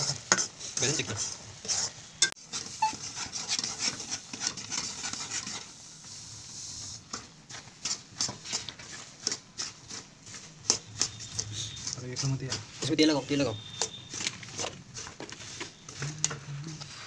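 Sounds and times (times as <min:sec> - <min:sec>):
seeds poured into hot syrup hissing: 0:05.7 - 0:07.0
metal spoon scraping metal pan: 0:07.8 - 0:15.2.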